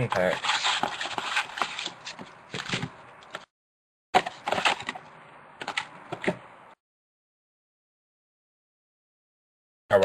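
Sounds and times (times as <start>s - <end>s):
card wrappers crinkling and scraping: 0.0s - 3.5s, 4.2s - 5.0s.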